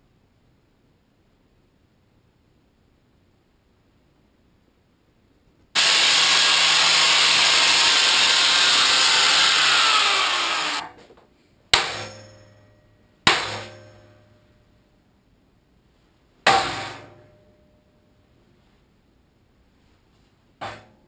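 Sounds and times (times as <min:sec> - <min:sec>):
angle grinder on steel: 0:05.8 - 0:10.8
ringing metal clangs: 0:11.8 - 0:14.6.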